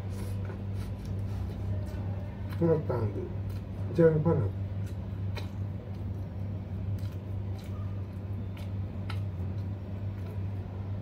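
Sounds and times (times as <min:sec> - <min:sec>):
person chewing food: 0:00.0 - 0:03.8, 0:04.6 - 0:11.0
low electrical hum: 0:00.0 - 0:11.0.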